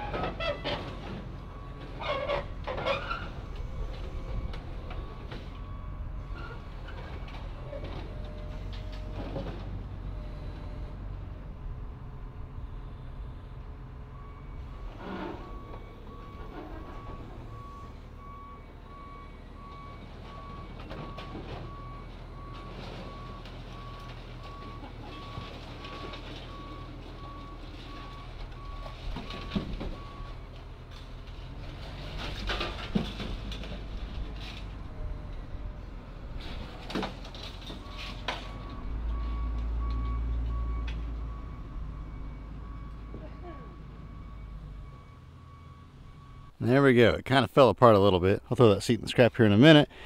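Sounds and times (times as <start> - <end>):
metal clanking and creaking: 0.0 - 10.0, 14.3 - 18.4, 19.8 - 35.5, 36.3 - 41.4
diesel engine running under load: 0.0 - 46.8
backup alarm beeping: 15.4 - 25.4, 38.4 - 46.8.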